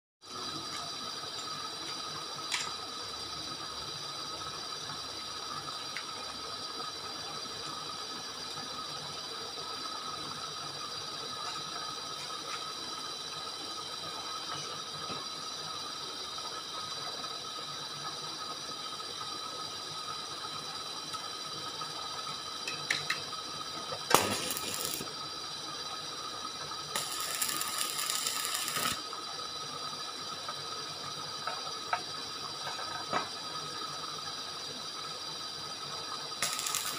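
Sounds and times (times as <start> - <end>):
welding arc hissing crackle: 0.2 - 17.2, 20.3 - 35.0, 35.6 - 36.9
machine hum: 23.4 - 25.4, 26.6 - 29.3, 36.4 - 36.9
welding arc crack: 23.9 - 25.2, 26.9 - 29.1, 36.4 - 36.9.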